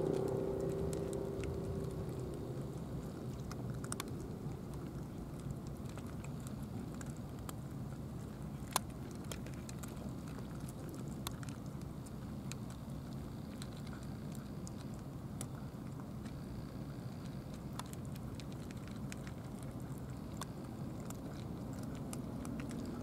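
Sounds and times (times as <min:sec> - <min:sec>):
low rumble: 0:00.0 - 0:06.3
cats crunching dry kibble: 0:00.0 - 0:23.0.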